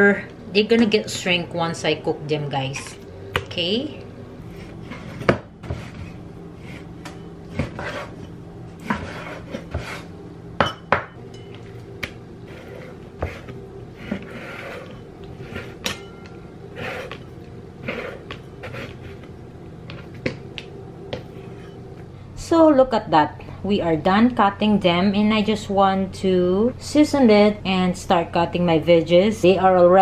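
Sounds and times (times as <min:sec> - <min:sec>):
steady low hum: 0:00.0 - 0:30.0
soft scraping: 0:04.4 - 0:10.1, 0:12.4 - 0:15.8.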